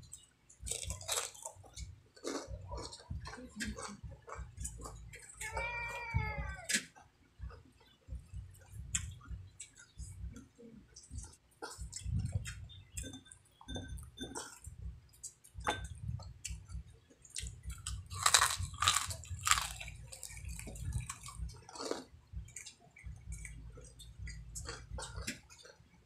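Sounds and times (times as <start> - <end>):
crunching crispy fried chicken: 0.1 - 3.9, 17.2 - 22.8.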